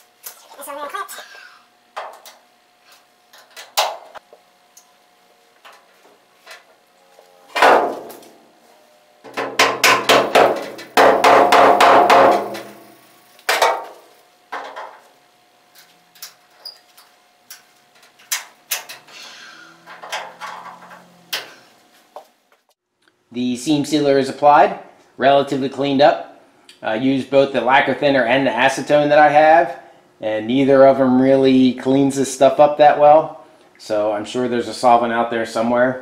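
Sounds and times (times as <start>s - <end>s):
rapid metal-on-metal strikes: 9.3s - 12.9s
metal knocks and clanks: 19.8s - 21.5s.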